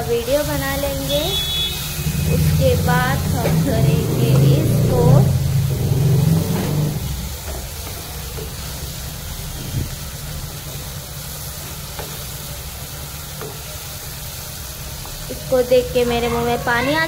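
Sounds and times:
masala sizzling in a pan: 0.0 - 17.0
spatula scraping a pan: 1.4 - 9.9.

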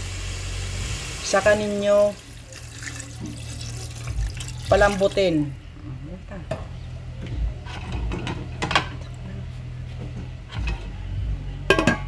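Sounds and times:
low hum: 3.6 - 12.0
cookware clicking and knocking: 7.7 - 9.0, 11.7 - 12.0.

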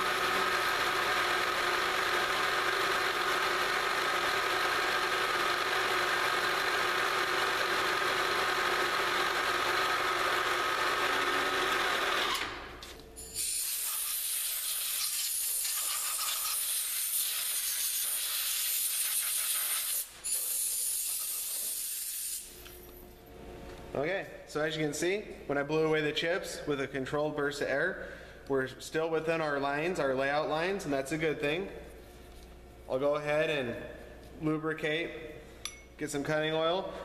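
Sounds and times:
milling machine spindle running: 0.0 - 12.5
compressed air blowgun hissing: 13.3 - 22.5.

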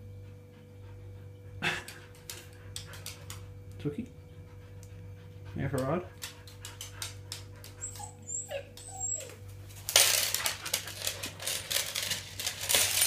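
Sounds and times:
dog whimpering: 7.7 - 9.4
rustling and clicking: 9.7 - 13.0.

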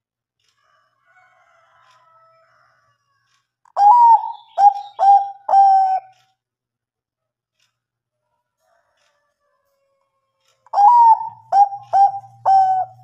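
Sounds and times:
dove cooing: 3.8 - 6.2, 10.7 - 13.0.

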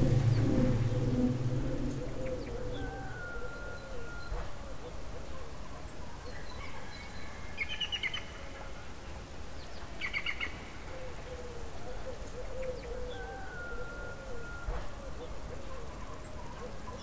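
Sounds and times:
birds chirping: 0.0 - 5.0
faint low outdoor rumble: 0.0 - 17.0.

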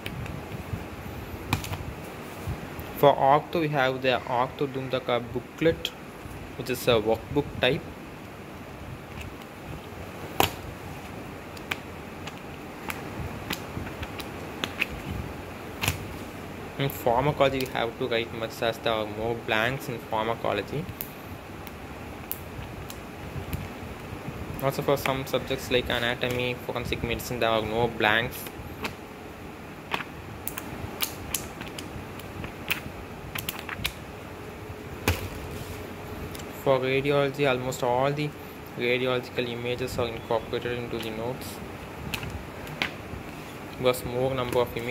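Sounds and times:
low hiss: 0.0 - 44.9.

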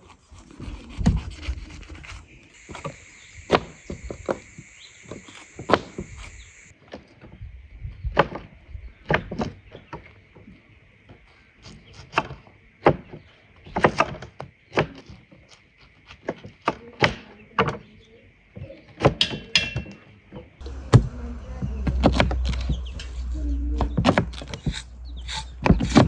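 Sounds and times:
sharp knocks and thunks: 8.0 - 10.1, 12.0 - 15.2, 18.6 - 23.0, 23.7 - 24.8, 25.4 - 26.0
steady low rumble: 20.6 - 25.7.

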